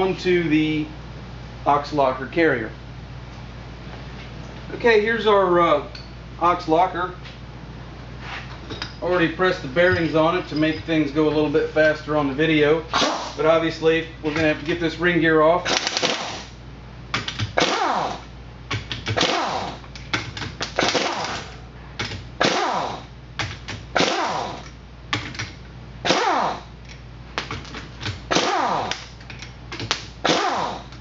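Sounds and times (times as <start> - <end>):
pneumatic wrench bursts: 15.7 - 16.6, 17.6 - 18.3, 19.1 - 19.8, 20.7 - 21.6, 22.4 - 23.1, 24.0 - 24.6, 26.0 - 26.7, 28.3 - 29.1, 30.2 - 30.9.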